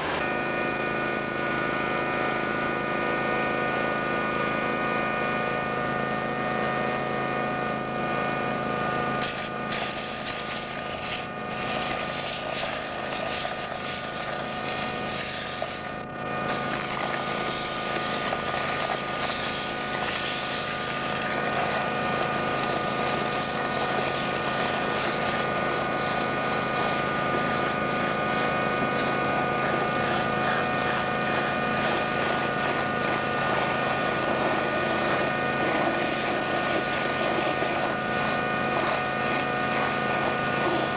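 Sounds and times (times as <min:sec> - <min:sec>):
vacuum excavator droning: 0:00.0 - 0:40.9
air rushing through hose: 0:09.2 - 0:28.3.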